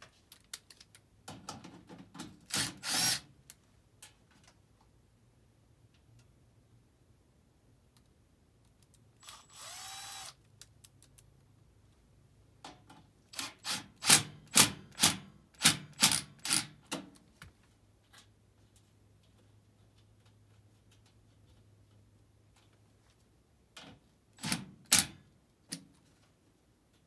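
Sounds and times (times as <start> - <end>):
cordless drill whining: 2.5 - 3.2, 9.2 - 10.4.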